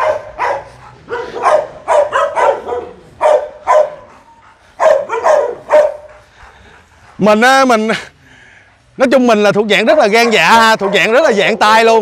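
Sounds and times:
dogs barking: 0.0s - 7.3s, 9.8s - 11.9s.

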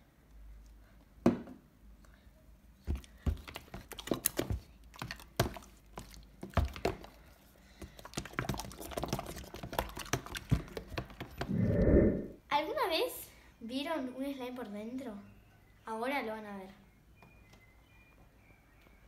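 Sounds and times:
slime stirred in plastic tub: 2.9s - 11.5s.

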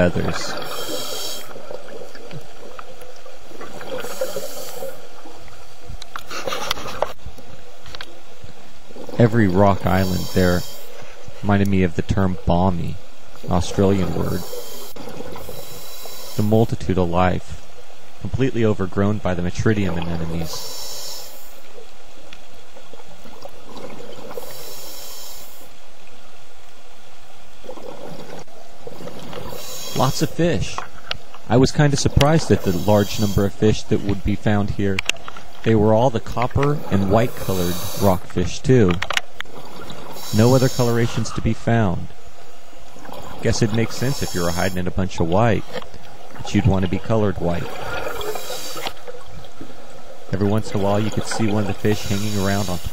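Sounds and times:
exhaled bubbles crackling: 0.0s - 7.2s, 22.8s - 24.6s, 27.6s - 42.2s, 42.8s - 52.9s
diver breathing through regulator: 0.5s - 1.6s, 3.9s - 5.0s, 9.9s - 11.1s, 14.3s - 16.6s, 20.4s - 21.6s, 24.3s - 25.7s, 29.3s - 30.3s, 32.5s - 33.6s, 37.1s - 38.2s, 39.8s - 41.2s, 43.9s - 44.8s, 47.9s - 49.0s, 51.8s - 52.9s
exhaled bubbles rushing: 42.9s - 52.9s.

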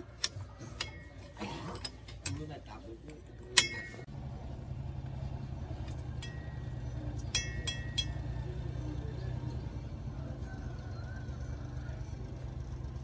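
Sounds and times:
metallic clinks: 5.9s - 8.7s.

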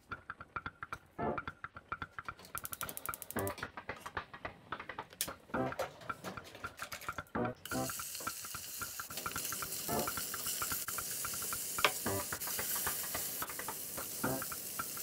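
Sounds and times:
meat sizzling in oil: 7.7s - 15.0s.

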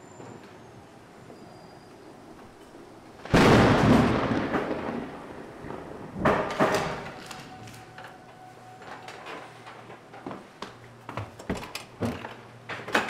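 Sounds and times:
door slamming shut: 6.2s - 7.8s.

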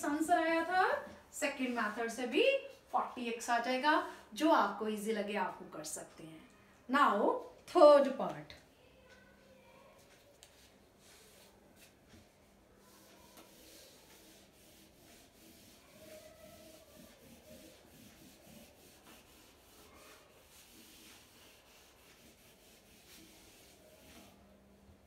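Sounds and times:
eraser wiping whiteboard: 9.0s - 24.6s.

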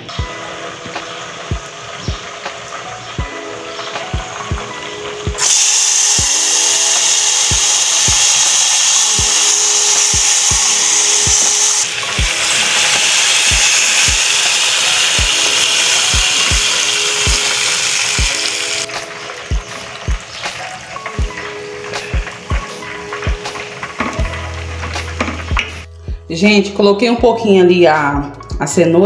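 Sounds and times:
background music with steady beat: 0.0s - 29.0s
seasoning sizzling in hot oil: 0.2s - 25.9s
beans poured into pot: 5.4s - 18.9s.

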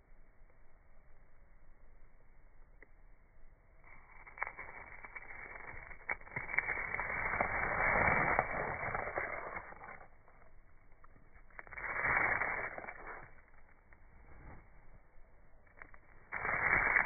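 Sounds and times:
fingers rustling through moss: 3.8s - 17.0s.

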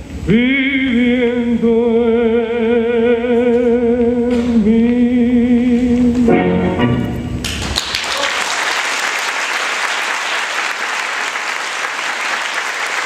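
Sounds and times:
audience applauding: 7.4s - 13.0s.

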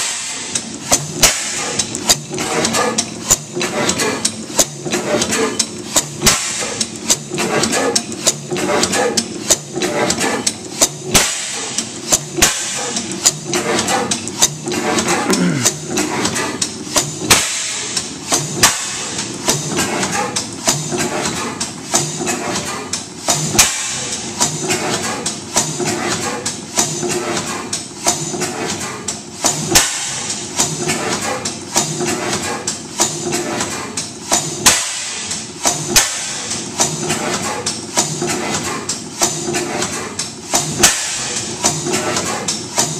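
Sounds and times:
engine valve gear clicking: 0.1s - 19.8s.

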